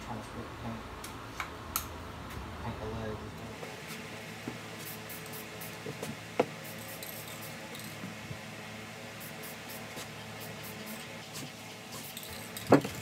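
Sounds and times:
steady low hum: 0.0s - 13.0s
spray-paint can hissing: 4.8s - 5.8s, 6.6s - 8.0s, 9.2s - 12.5s.

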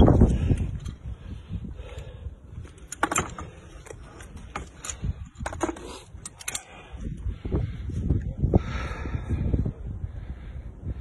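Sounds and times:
wind rumble on microphone: 0.0s - 11.0s
metallic clicks and knocks: 2.7s - 6.7s.

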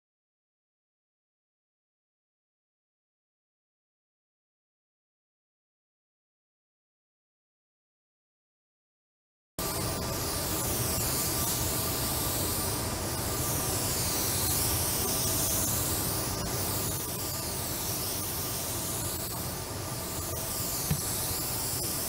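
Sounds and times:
paint spray gun hissing: 9.6s - 22.0s.

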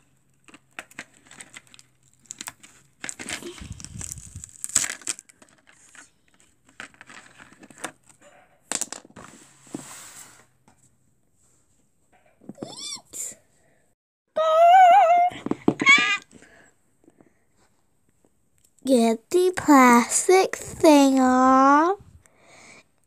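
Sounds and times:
plastic packaging crinkling: 0.0s - 8.2s.

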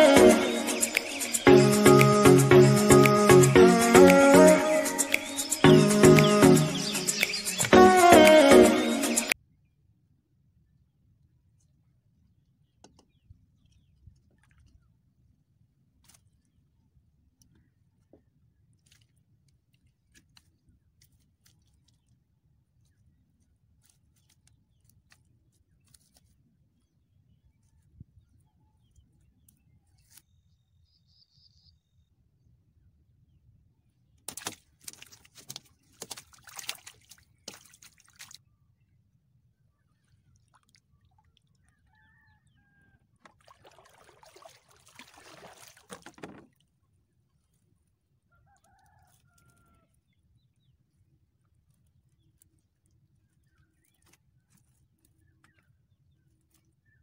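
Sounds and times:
fish splashing at surface: 34.3s - 38.4s, 43.3s - 46.4s
water dripping off net: 34.3s - 38.4s.

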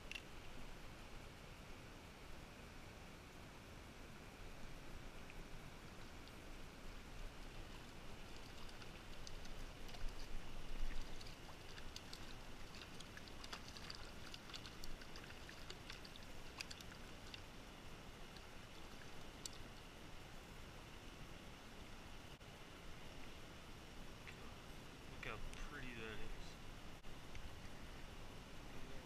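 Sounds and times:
water clicks and splashes: 0.0s - 0.5s, 7.4s - 19.9s
creek flowing: 0.0s - 29.0s.

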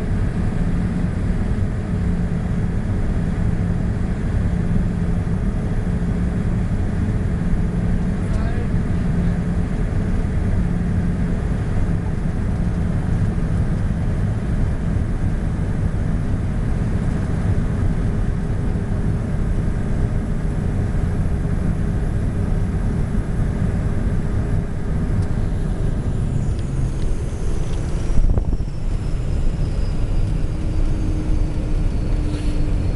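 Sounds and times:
jet engine and airflow drone: 0.0s - 32.9s
low steady hum: 0.0s - 32.9s
faint high whine sliding down: 25.1s - 32.9s.

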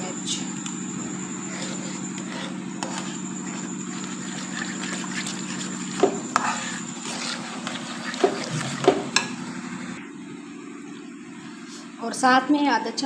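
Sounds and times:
steady low hum: 0.0s - 13.0s
spoon stirring sauce in pot: 1.6s - 9.4s.

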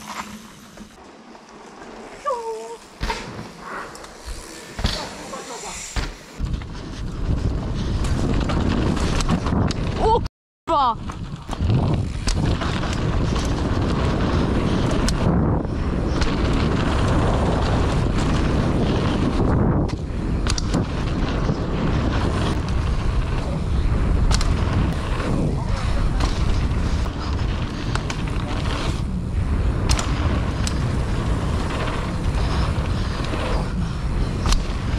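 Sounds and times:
bike clicks and rattles: 3.0s - 10.2s, 11.0s - 34.9s
wind buffeting microphone: 4.2s - 10.3s, 10.9s - 34.9s
tyres rumbling on dirt: 11.3s - 34.9s.

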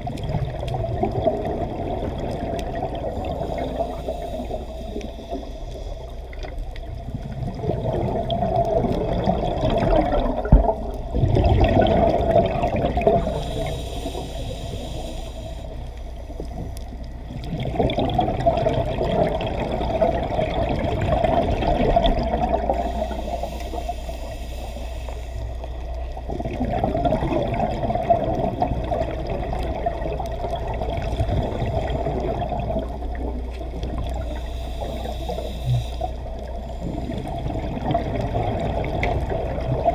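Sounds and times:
exhaled bubbles gurgling underwater: 0.0s - 39.9s
diver breathing through regulator: 3.1s - 6.4s, 13.1s - 16.8s, 22.6s - 25.9s, 34.0s - 38.0s.

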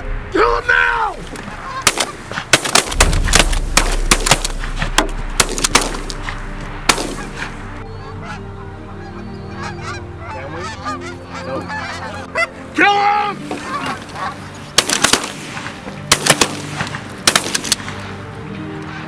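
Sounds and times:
geese honking: 0.0s - 17.0s, 18.7s - 19.0s
shotguns firing: 1.8s - 7.5s, 14.8s - 18.0s.

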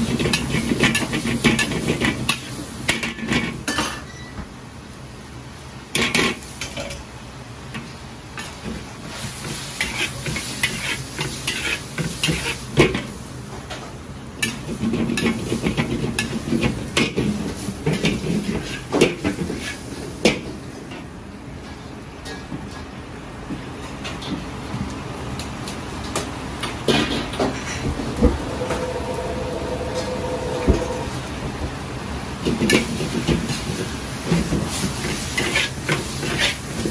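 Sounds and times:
onions and pork sizzling in wok: 0.0s - 3.7s, 5.0s - 36.9s
metal spatula scraping wok: 9.8s - 12.6s.

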